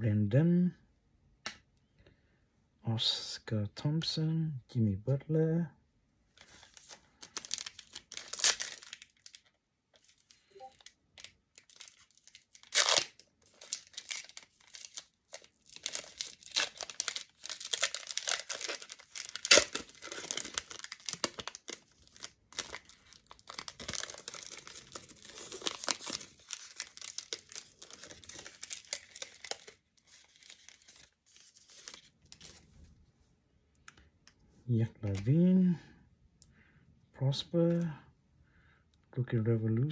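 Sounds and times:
foil wrapper crackling: 6.4s - 32.6s
foil packs ripping: 6.6s - 9.4s, 10.0s - 32.5s.

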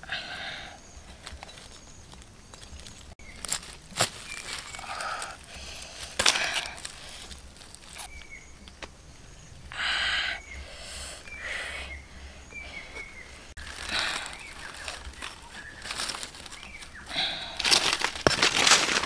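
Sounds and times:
dry leaves rustling and crunching: 1.1s - 8.4s, 13.6s - 19.0s.

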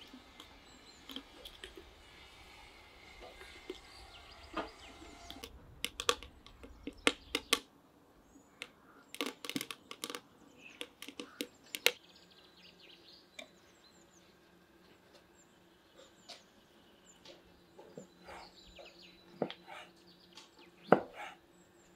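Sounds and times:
small birds chirping: 0.0s - 21.9s
kindling sticks snapping: 5.3s - 7.7s, 8.6s - 12.0s.

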